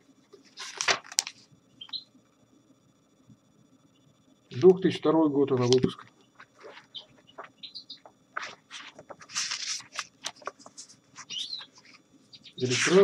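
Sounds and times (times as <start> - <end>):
book pages rustling: 0.4 - 1.4, 5.6 - 7.6, 8.3 - 12.0, 12.6 - 13.0
cage birds chirping: 1.7 - 2.2, 6.2 - 8.2, 11.2 - 13.0.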